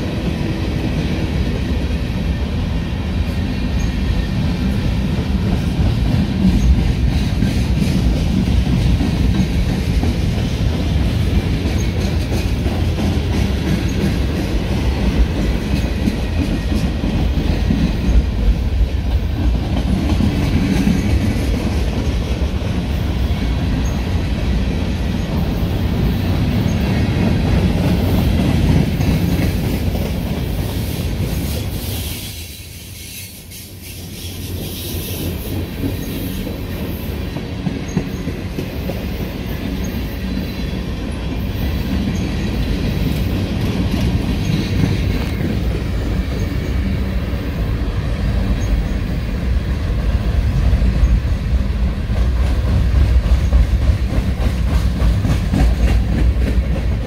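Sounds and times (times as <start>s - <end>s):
train wheels rumbling on rails: 0.0s - 57.0s.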